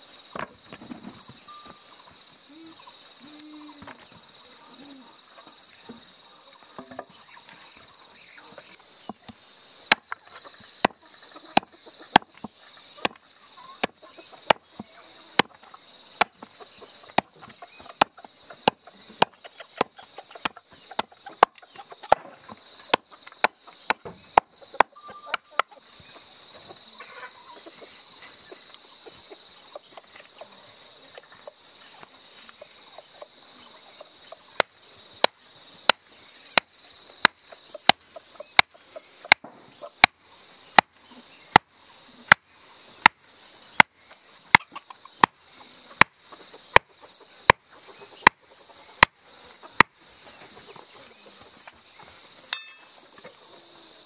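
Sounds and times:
hand tool chopping strikes: 0:09.1 - 0:10.2, 0:11.6 - 0:13.2, 0:16.2 - 0:16.5, 0:22.9 - 0:25.7, 0:39.3 - 0:40.2.

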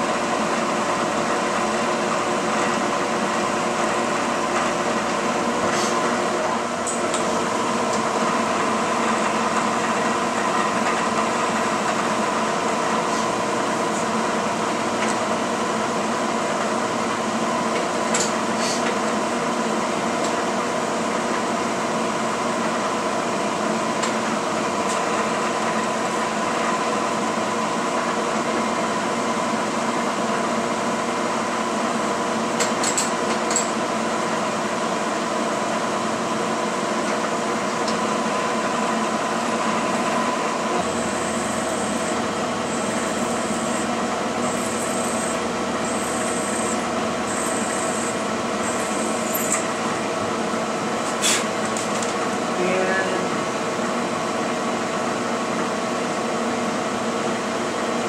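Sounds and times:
milling machine spindle running: 0:00.0 - 0:58.0
drill cutting into metal plate: 0:40.8 - 0:49.6.

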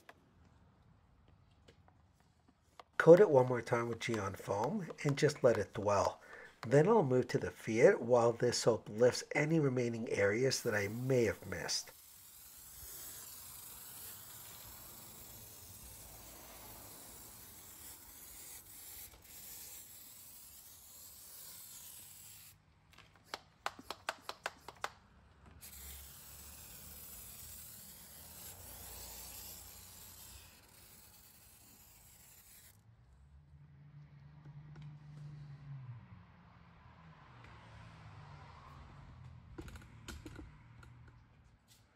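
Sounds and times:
foam sprayer hissing: 0:10.1 - 0:22.5, 0:25.6 - 0:32.6.

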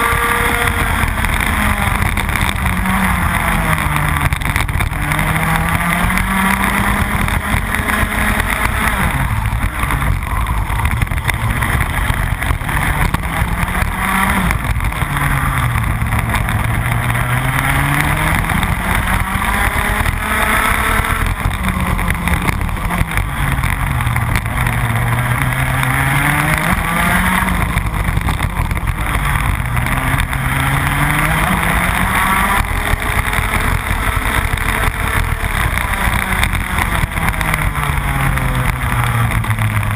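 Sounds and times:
two-stroke kart engine racing: 0:00.0 - 0:39.9.

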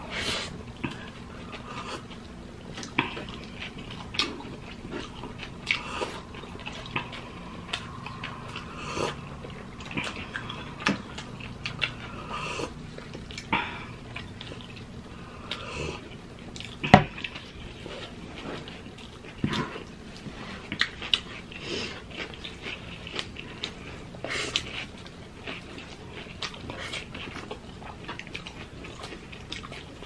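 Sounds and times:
chewing and lip smacks: 0:00.7 - 0:30.0.

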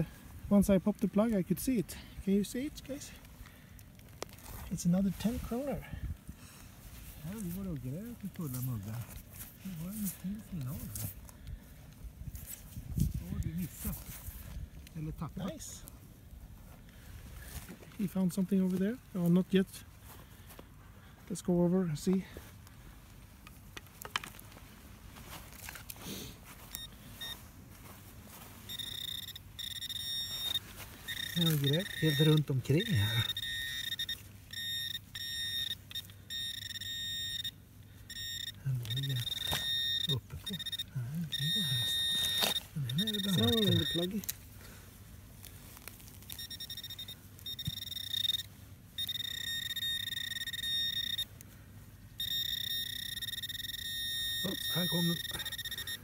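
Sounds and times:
metal detector pinpointer beeps: 0:26.6 - 0:27.5, 0:28.6 - 0:44.4, 0:46.2 - 0:51.4, 0:52.2 - 0:56.0
steady high detector tone: 0:26.6 - 0:44.3, 0:46.2 - 0:56.0.

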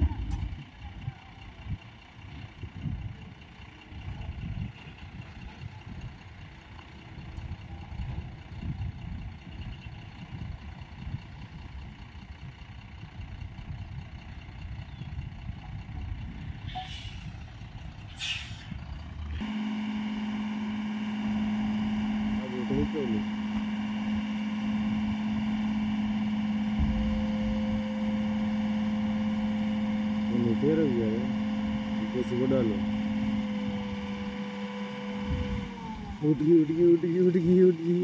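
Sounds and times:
diesel truck engine rumbling: 0:00.0 - 0:38.0.

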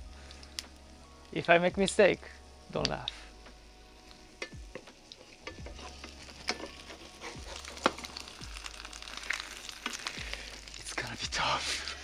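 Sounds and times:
food sizzling in a skillet: 0:00.0 - 0:12.0
spatula scraping and tapping pan: 0:04.4 - 0:08.3.

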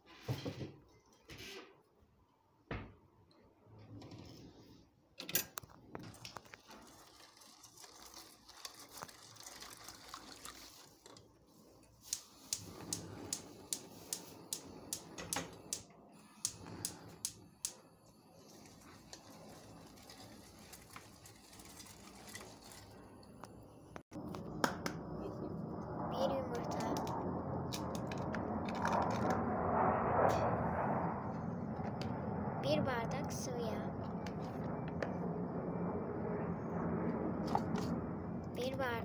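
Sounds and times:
pot handling and stirring: 0:05.4 - 0:12.8, 0:18.3 - 0:23.4.

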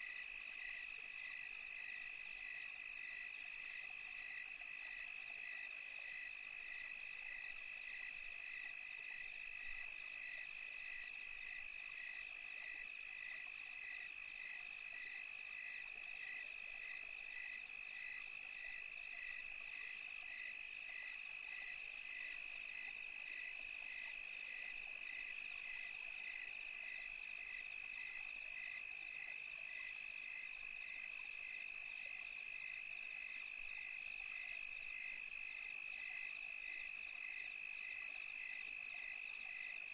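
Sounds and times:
pulsing insect chirp: 0:00.0 - 0:39.9.

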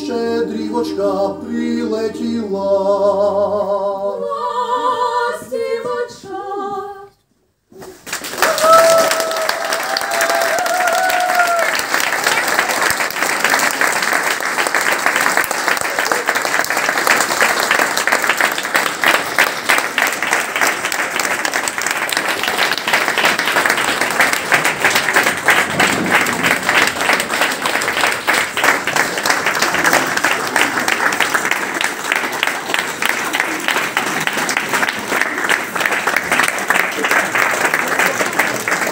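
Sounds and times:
crowd clapping: 0:08.0 - 0:38.9.

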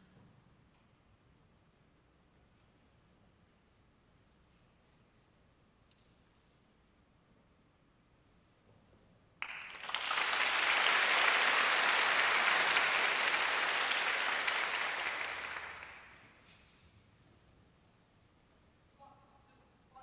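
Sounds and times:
audience applauding: 0:09.4 - 0:16.2.

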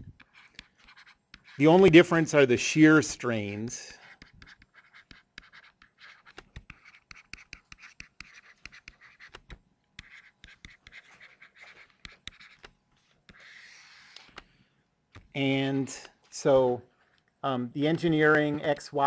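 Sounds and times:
stylus tapping and scratching: 0:00.0 - 0:02.3, 0:04.0 - 0:16.4.

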